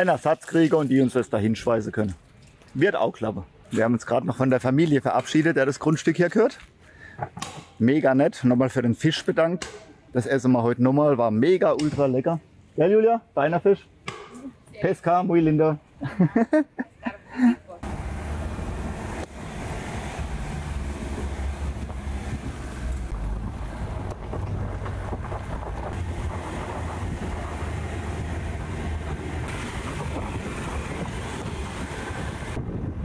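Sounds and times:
tyres and engine rumbling: 17.3s - 33.0s
wind buffeting microphone: 18.4s - 33.0s.

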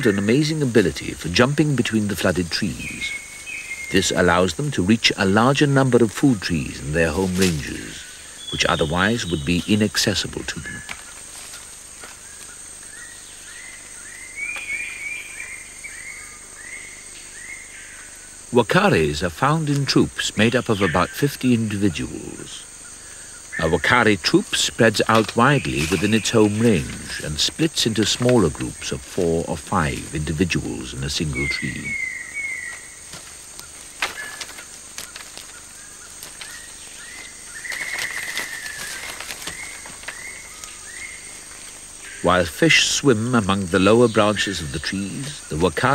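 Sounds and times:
branches snapping and crackling: 6.0s - 8.0s, 10.3s - 12.9s, 14.4s - 14.9s, 23.6s - 42.0s
animal call notes: 13.0s - 33.0s.

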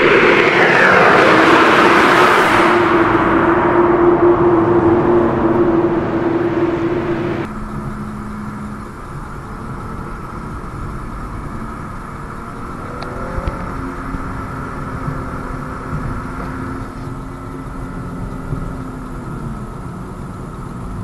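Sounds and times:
loud droning tone: 0.0s - 7.8s
car engine cruising from cabin: 9.6s - 21.0s.

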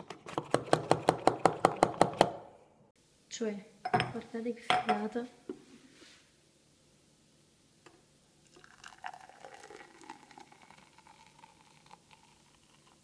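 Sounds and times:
faint milk pouring: 8.4s - 13.0s.

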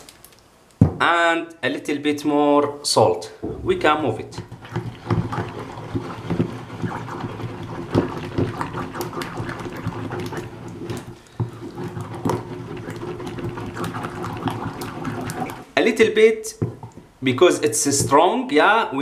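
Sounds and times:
pestle knocking bowl: 3.4s - 14.8s, 16.6s - 17.1s
paste squelching in mortar: 4.2s - 15.7s.

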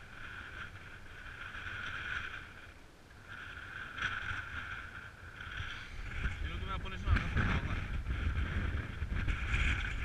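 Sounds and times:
wind rumbling on microphone: 0.0s - 10.0s.

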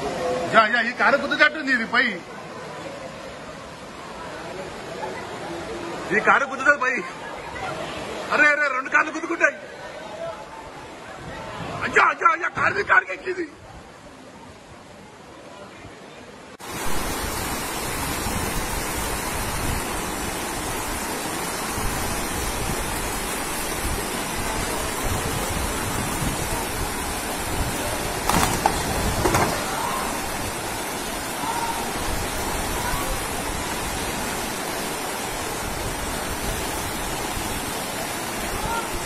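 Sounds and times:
floodwater rushing: 0.0s - 15.6s, 16.3s - 39.0s
brief knocks: 28.3s - 29.7s.

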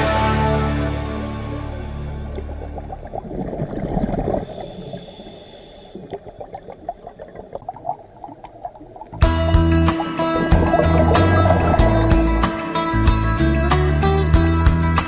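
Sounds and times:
background music: 0.0s - 2.9s, 9.2s - 15.0s
underwater bubbles gurgling: 2.2s - 12.4s.

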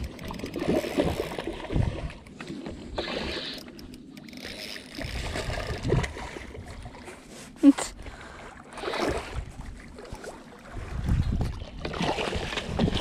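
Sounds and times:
fish splashing in water: 11.7s - 13.0s.

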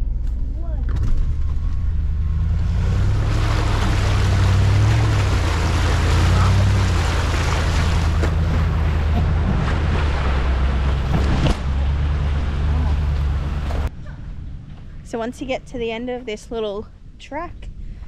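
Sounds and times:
engine running at low speed: 0.0s - 16.0s
water splashing and hissing: 2.8s - 13.9s.

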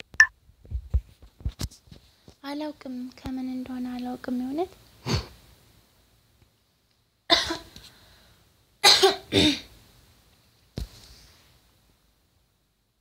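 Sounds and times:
person coughing: 7.3s - 7.7s, 8.8s - 9.7s.

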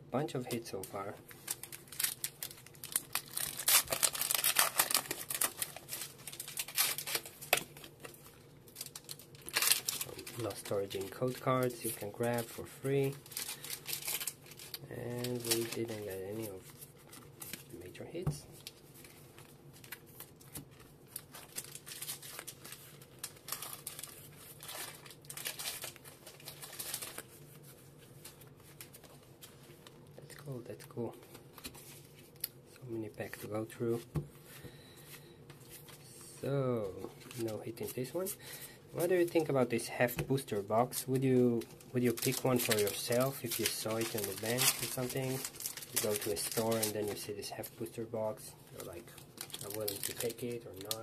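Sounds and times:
foil wrapper crinkling and tearing: 0.7s - 18.0s, 18.6s - 27.6s, 39.0s - 51.0s.

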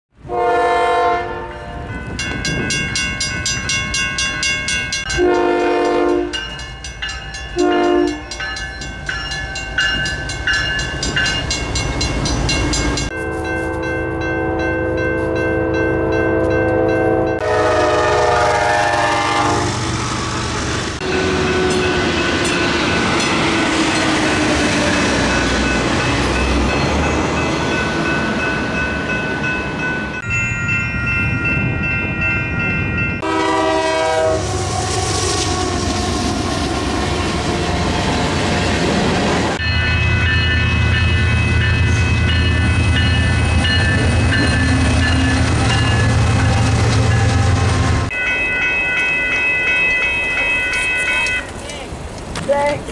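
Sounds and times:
locomotive air horns: 0.2s - 1.6s, 5.1s - 6.4s, 7.6s - 8.3s, 13.1s - 19.8s, 33.2s - 35.9s
crossing warning bells: 0.2s - 52.9s
train rumbling past: 0.2s - 52.9s.

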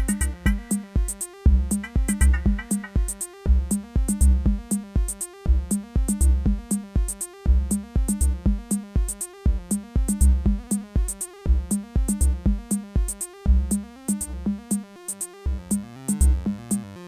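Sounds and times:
sequenced synth line: 0.0s - 0.8s
kick and hi-hat beat: 0.0s - 16.9s
bass: 0.0s - 17.0s.

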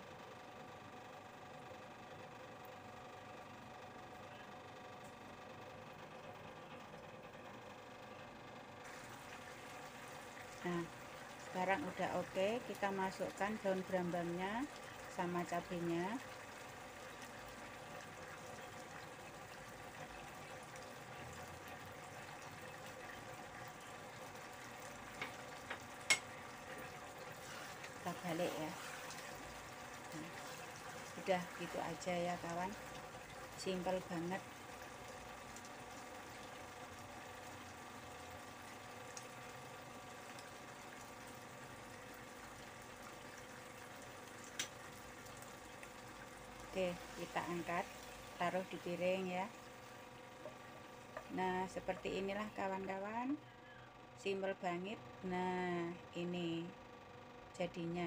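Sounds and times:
sauce bubbling in a pan: 8.8s - 53.0s.

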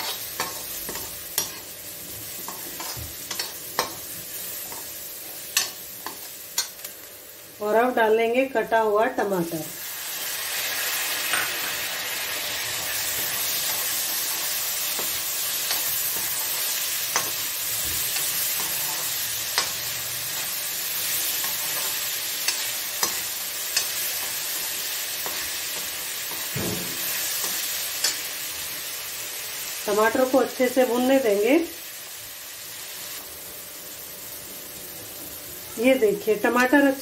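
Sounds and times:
metal spoon scraping a pan: 0.0s - 1.7s, 2.4s - 6.8s
tomatoes sizzling in a pan: 0.0s - 37.0s.

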